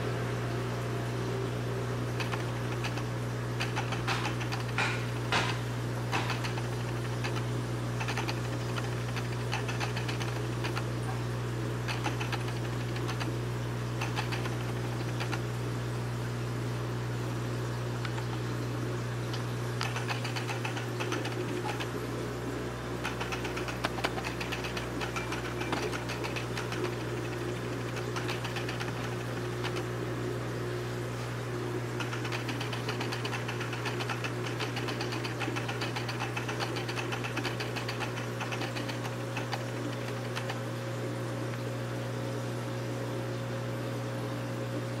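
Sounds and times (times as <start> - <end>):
aquarium equipment humming: 0.0 - 45.0
rapid fine clicking: 2.2 - 11.1, 11.8 - 13.4, 14.0 - 15.5, 18.0 - 18.5, 19.3 - 22.0, 23.0 - 30.0, 31.9 - 40.7.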